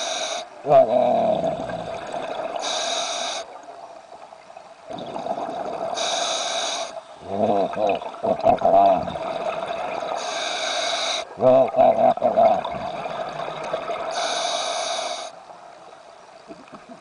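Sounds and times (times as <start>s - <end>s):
regulator hissing inhalation: 0.0s - 0.6s, 2.6s - 3.6s, 6.0s - 7.5s, 10.2s - 11.3s, 14.1s - 15.4s
gurgling exhaust bubbles: 0.9s - 2.6s, 4.9s - 6.0s, 7.2s - 10.2s, 11.4s - 14.1s.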